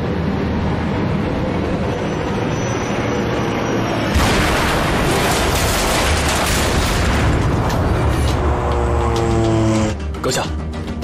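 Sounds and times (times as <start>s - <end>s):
propeller aircraft engines droning: 0.0s - 4.2s
bomb explosion rumble: 4.1s - 8.3s.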